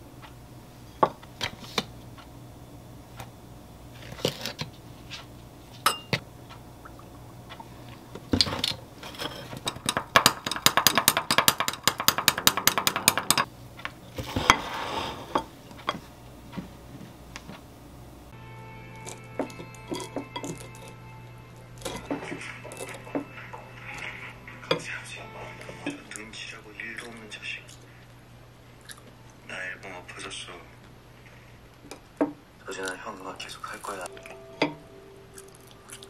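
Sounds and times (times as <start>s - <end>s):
spoon clinking against glass: 5.9s - 6.2s, 19.0s - 20.9s.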